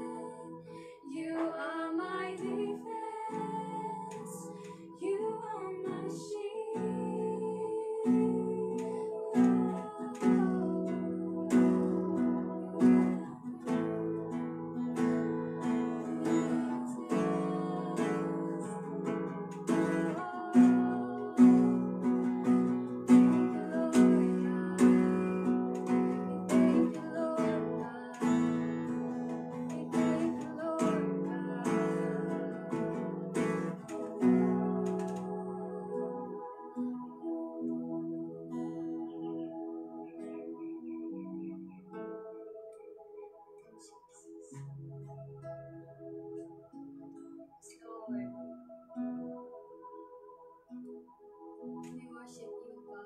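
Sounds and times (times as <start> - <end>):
acoustic guitar strumming: 8.0 - 43.0.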